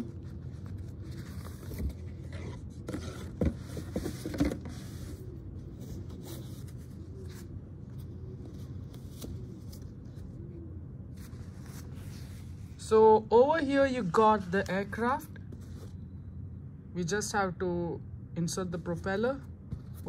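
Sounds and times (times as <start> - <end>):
cardboard lid scraping and knocking: 1.7 - 4.9.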